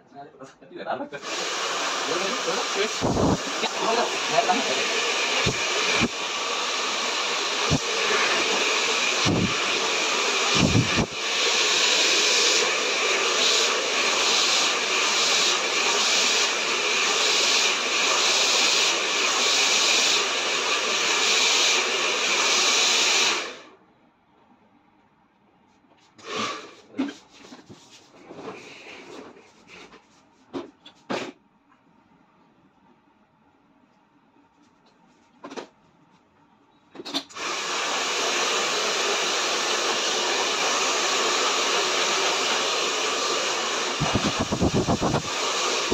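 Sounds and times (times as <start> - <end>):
hair dryer blowing: 1.2 - 23.7, 26.2 - 26.8, 37.2 - 45.9.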